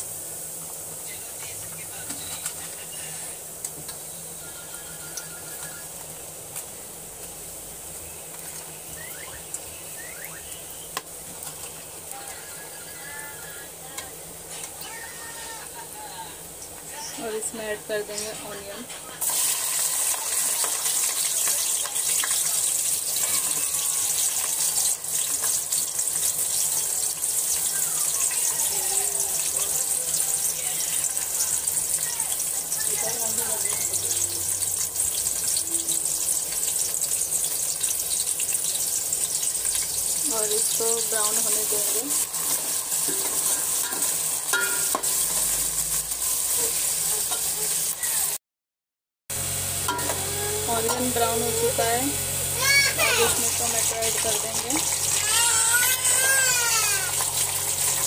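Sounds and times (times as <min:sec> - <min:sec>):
onions sizzling in hot oil: 0:00.0 - 0:48.4, 0:49.3 - 0:58.0
spoon scraping a metal pot: 0:42.4 - 0:45.4.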